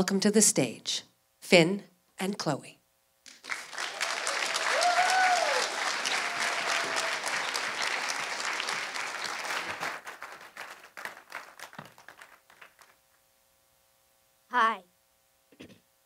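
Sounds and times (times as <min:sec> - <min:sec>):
audience applauding: 0:03.3 - 0:13.0.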